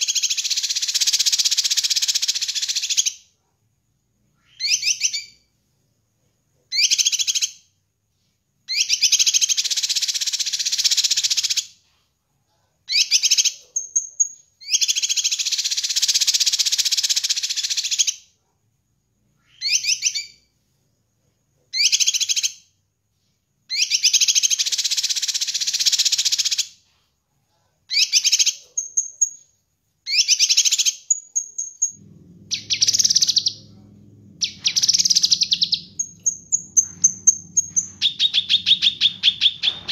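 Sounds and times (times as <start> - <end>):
bird chattering song: 30.1 - 39.9
high bird whistles: 30.1 - 39.9
low hum: 31.9 - 39.9.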